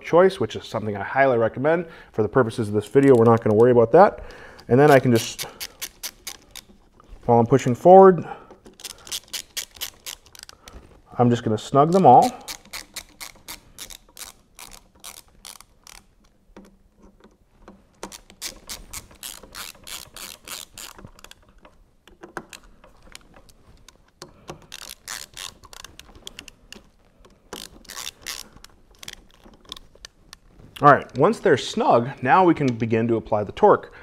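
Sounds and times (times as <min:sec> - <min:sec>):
ratchet handle clicking: 0:04.6 - 0:06.9, 0:08.6 - 0:10.8, 0:11.8 - 0:30.4.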